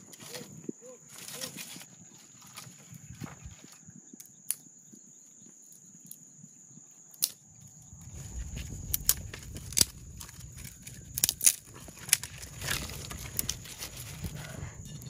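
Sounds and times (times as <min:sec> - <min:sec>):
low rumble: 0:07.7 - 0:15.0.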